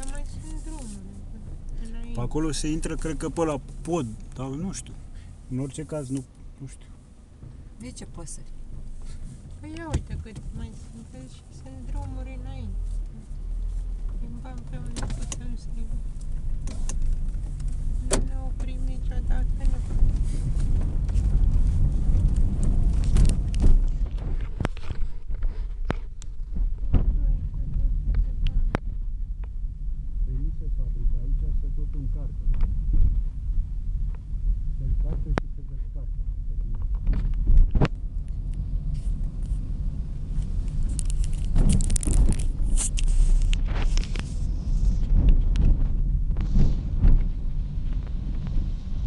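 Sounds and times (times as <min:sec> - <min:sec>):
moving car rumble: 0:00.0 - 0:49.0
rustling and clicking: 0:13.8 - 0:27.1, 0:40.3 - 0:48.5.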